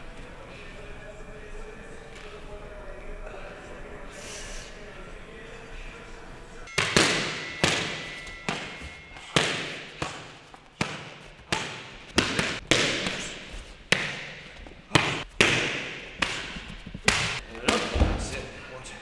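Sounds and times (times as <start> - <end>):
kicks and punches hitting pads: 6.7 - 18.2.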